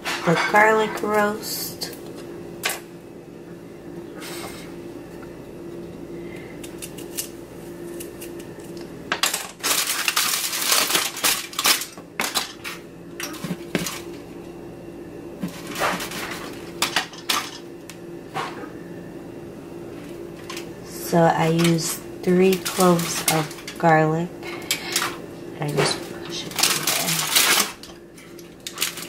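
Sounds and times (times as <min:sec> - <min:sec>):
aluminum foil crinkling: 0:09.3 - 0:14.1, 0:21.4 - 0:23.9, 0:25.7 - 0:29.0.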